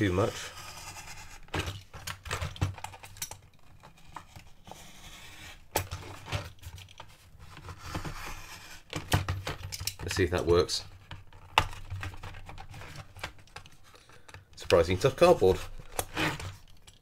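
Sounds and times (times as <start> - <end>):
blade scratching cardboard: 0.2 - 1.7, 4.0 - 6.5, 7.5 - 9.0, 15.0 - 16.6.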